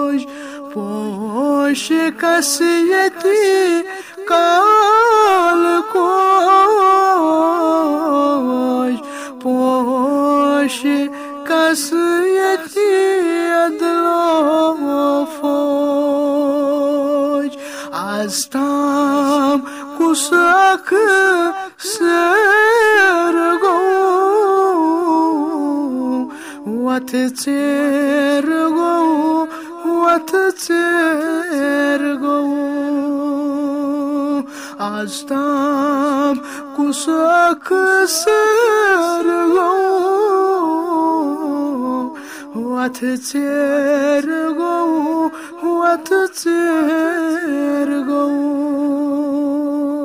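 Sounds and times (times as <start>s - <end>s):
man singing unaccompanied: 0.0s - 50.0s.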